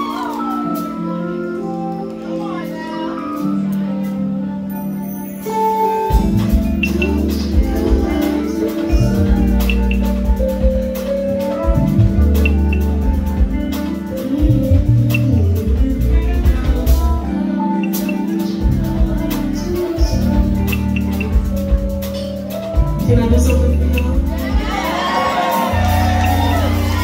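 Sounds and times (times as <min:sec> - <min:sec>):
drums: 0:00.0 - 0:01.5, 0:05.4 - 0:27.0
live band playing: 0:00.0 - 0:27.0
low bass notes: 0:06.1 - 0:27.0.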